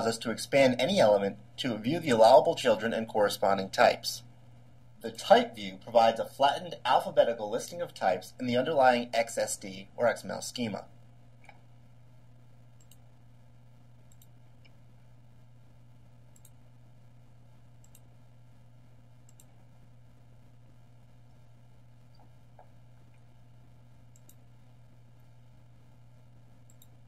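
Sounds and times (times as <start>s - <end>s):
low steady hum: 0.0s - 27.0s
computer mouse clicks: 12.8s - 13.0s, 14.1s - 14.8s, 16.3s - 16.6s, 17.8s - 18.1s, 19.2s - 19.6s, 24.1s - 24.4s, 26.6s - 27.0s.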